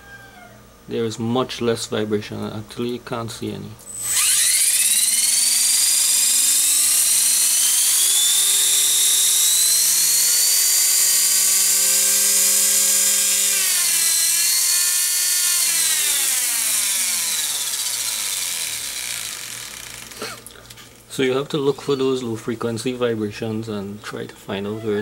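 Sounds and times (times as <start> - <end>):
rc helicopter motor whining: 3.9 - 20.4.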